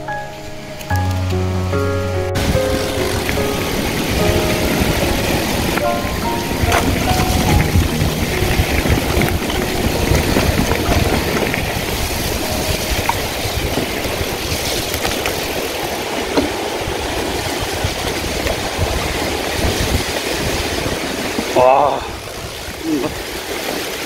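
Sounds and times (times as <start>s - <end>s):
wind buffeting microphone: 1.3s - 24.0s
rushing mountain stream: 2.3s - 24.0s
tyre noise: 2.4s - 15.7s
bike rattling over dirt trail: 2.4s - 24.0s.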